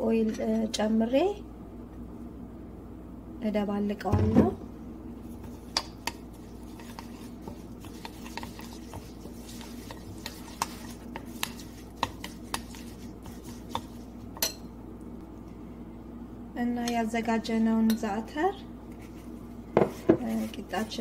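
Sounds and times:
steady low hum: 0.0s - 21.0s
spoon clinking against ceramic bowl: 14.4s - 14.7s.

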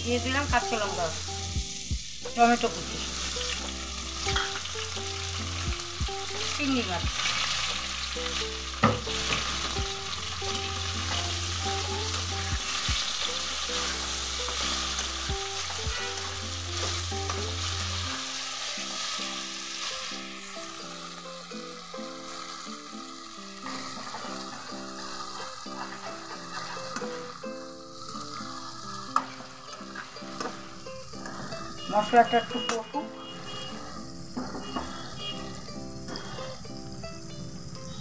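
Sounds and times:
food sizzling in hot oil: 0.0s - 38.0s
metal spatula scraping pan: 10.4s - 19.9s, 23.7s - 27.4s, 28.1s - 36.5s.

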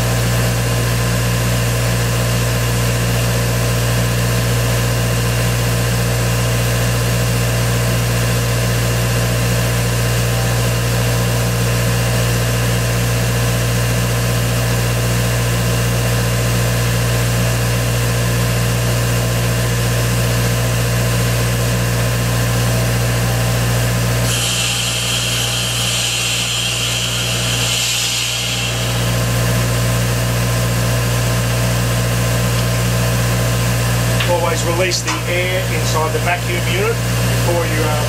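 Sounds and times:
vacuum unit droning: 0.0s - 14.8s, 16.4s - 38.0s
loud air hiss: 24.2s - 29.9s.

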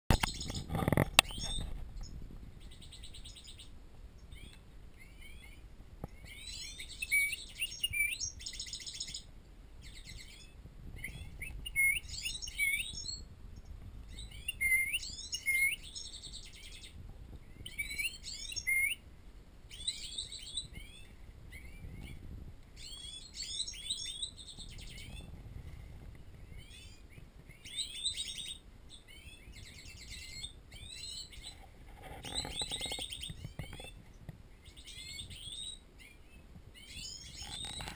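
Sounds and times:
finches singing: 0.2s - 19.0s.

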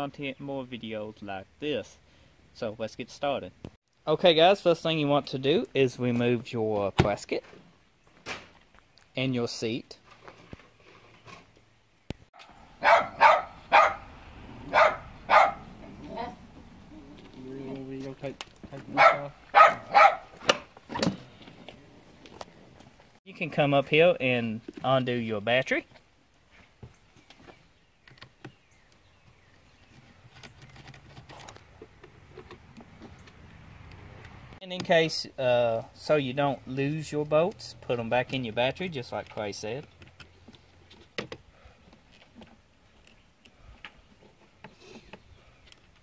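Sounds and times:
dog barking: 12.4s - 15.9s, 18.9s - 20.4s.

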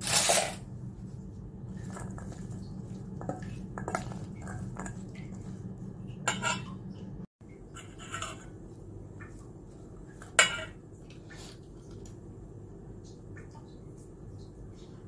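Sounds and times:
metal spoon scraping a steel bowl: 0.0s - 0.6s, 6.2s - 6.8s, 7.8s - 8.5s, 10.4s - 10.8s
steady low hum: 0.5s - 15.0s.

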